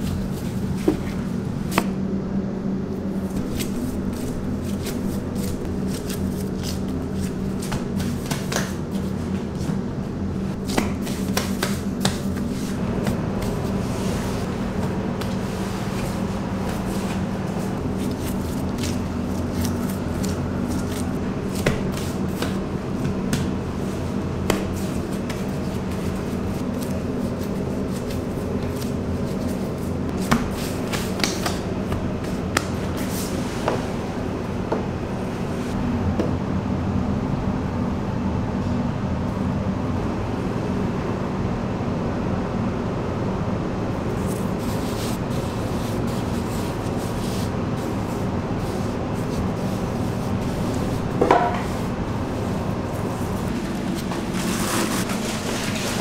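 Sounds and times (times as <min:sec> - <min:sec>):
pats and slaps of dough: 0:00.0 - 0:02.0, 0:03.3 - 0:09.8, 0:10.6 - 0:13.9, 0:14.8 - 0:33.9
steady low hum: 0:00.0 - 0:56.0.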